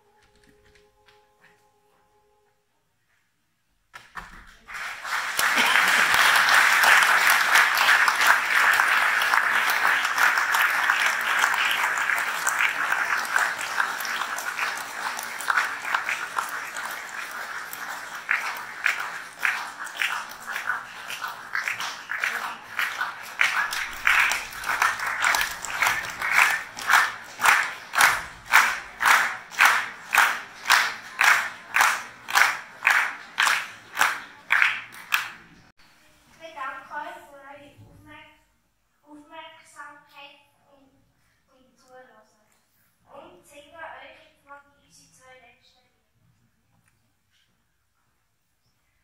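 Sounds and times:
rhythmic clapping in unison: 3.9 - 35.7
audience applause: 4.6 - 35.7.

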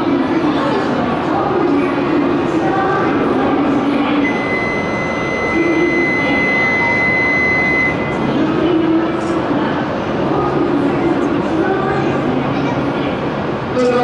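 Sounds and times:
steady rush of noise: 0.0 - 14.0
steady high tone: 2.6 - 9.2.

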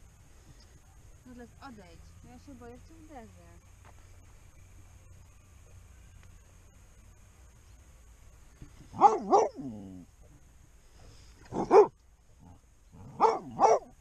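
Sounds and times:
dog barking: 8.9 - 9.7, 11.5 - 12.0, 13.1 - 14.0.

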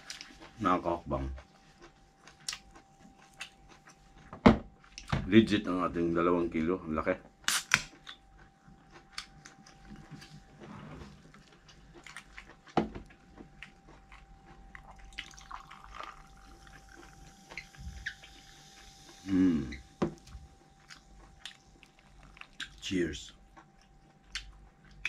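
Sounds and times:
wet chewing and mouth clicks: 0.0 - 5.2, 7.4 - 25.0
person humming: 19.2 - 19.8.

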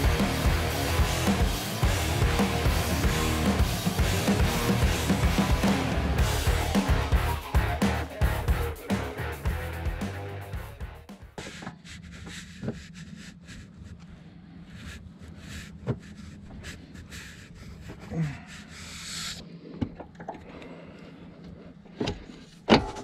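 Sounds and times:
rubbing and rustling: 11.4 - 19.4.

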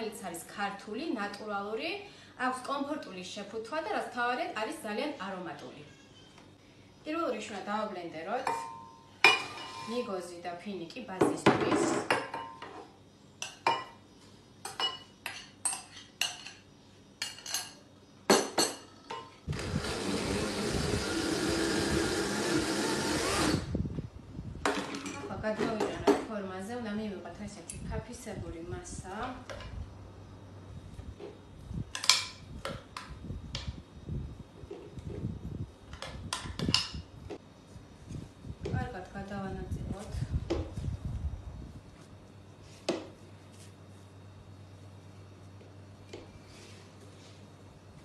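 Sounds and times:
blender motor: 19.5 - 23.8.

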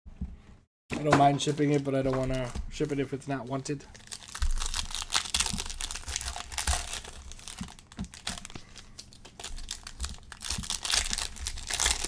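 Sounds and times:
plastic wrapper tearing and crinkling: 3.9 - 12.0.

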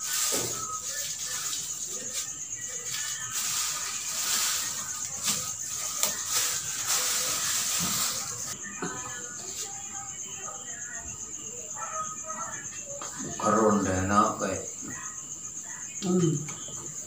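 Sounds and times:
plastic branches rustling: 0.0 - 8.6
faint background music: 0.0 - 17.0.

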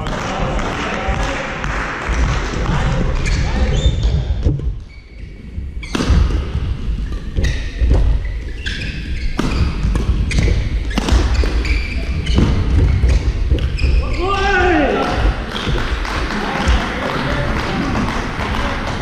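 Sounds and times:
shoe squeaks: 3.2 - 6.2, 7.0 - 14.3
racket striking shuttlecock: 5.8 - 13.7
footfalls on court floor: 5.8 - 19.0.

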